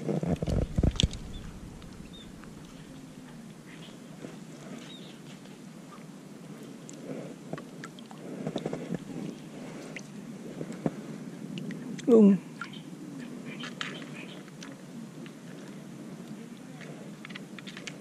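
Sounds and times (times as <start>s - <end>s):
rustling and small clicks: 0.2s - 3.0s, 16.8s - 18.0s
faint bird chirps: 1.0s - 4.1s.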